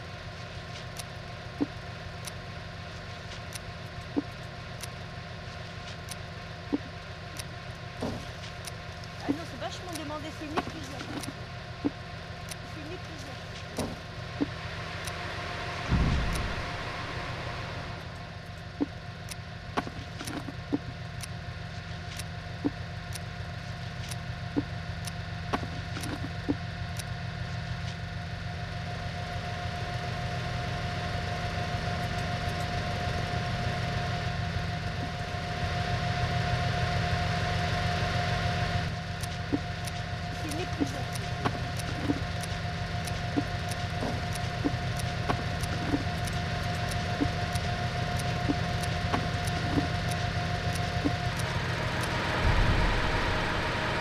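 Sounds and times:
constant whine: 0.0 - 54.0
farm machine engine droning: 0.0 - 54.0
heavy thump: 15.9 - 16.7.

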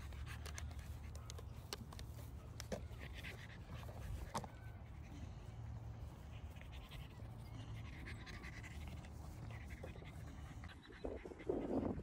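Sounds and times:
puppy panting: 0.0 - 12.0
wind rumble on microphone: 9.8 - 12.0.

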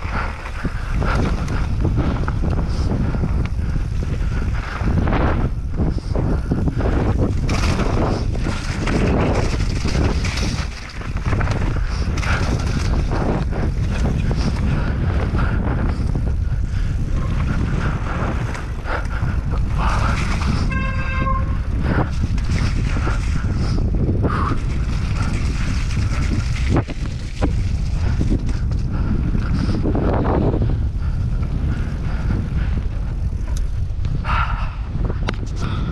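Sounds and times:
bike tyres rattling on rocks: 0.0 - 34.4
wind buffeting microphone: 0.0 - 35.9
brief honking tone: 20.7 - 21.7.

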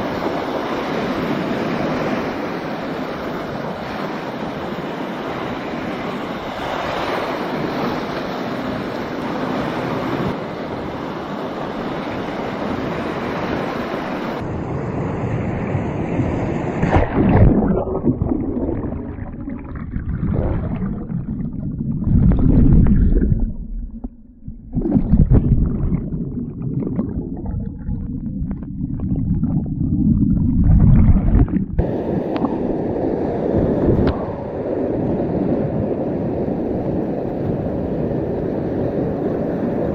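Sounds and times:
muffled underwater rushes: 15.8 - 37.8.

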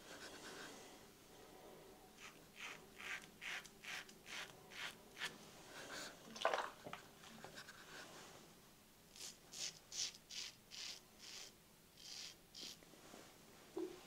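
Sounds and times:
razor scraping stubble: 2.2 - 5.3, 9.1 - 12.8.

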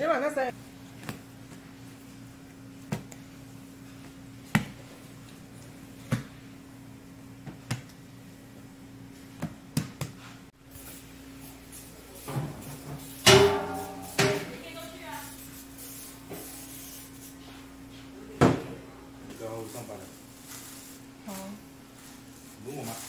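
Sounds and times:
steady low hum: 0.0 - 23.0
dough patted on counter: 2.8 - 3.3, 4.0 - 4.8, 7.4 - 8.0, 9.3 - 10.3.

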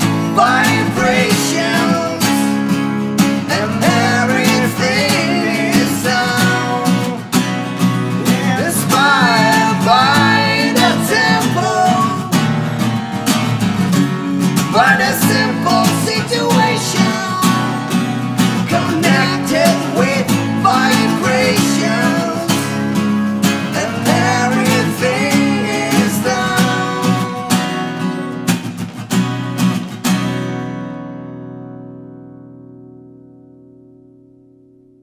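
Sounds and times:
men singing: 0.0 - 12.8, 14.4 - 28.4
acoustic guitars strummed: 0.0 - 35.0.

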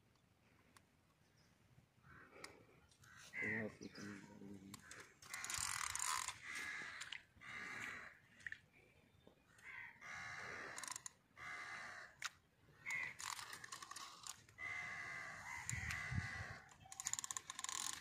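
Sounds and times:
rapid reel clicks: 4.8 - 6.4, 10.6 - 11.2, 12.9 - 14.5, 16.8 - 18.0
fishing reel whirring: 4.8 - 7.1, 10.1 - 11.7, 12.9 - 18.0.

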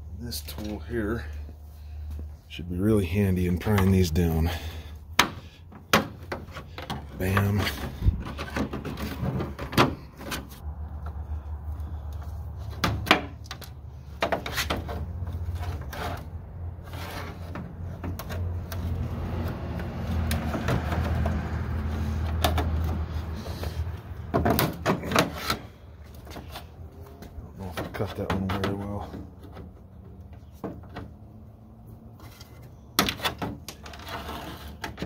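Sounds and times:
metal scraping on plastic: 5.4 - 10.6, 12.6 - 26.7, 32.1 - 35.0.

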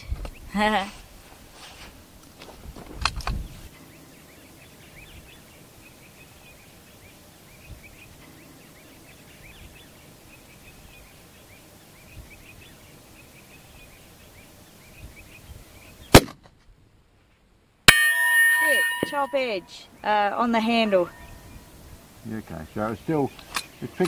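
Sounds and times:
faint bird chirps: 3.4 - 16.2, 18.5 - 24.0
loud rifle shot: 16.1 - 16.4.

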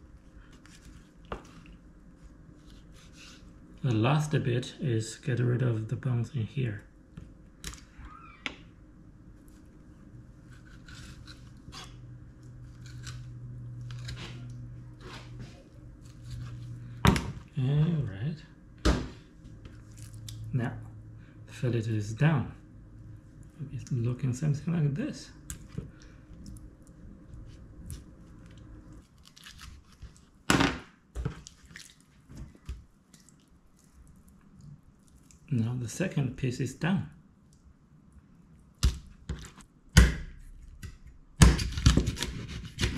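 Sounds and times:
steady low hum: 0.0 - 42.9
wet squishes of fish fillets: 31.3 - 35.5
knife scraping fish on cutting board: 42.0 - 42.9.

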